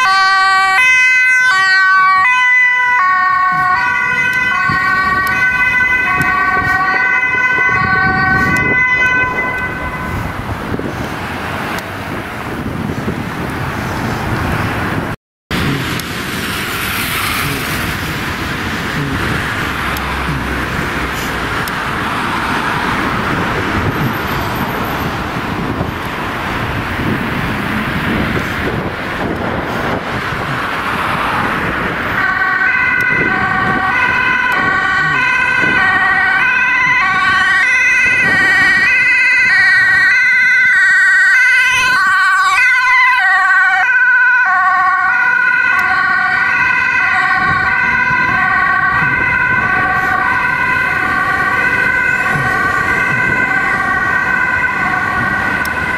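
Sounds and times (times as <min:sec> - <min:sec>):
two-tone ambulance siren: 0:00.0 - 0:11.0, 0:16.9 - 0:55.9
road traffic: 0:00.0 - 0:55.9.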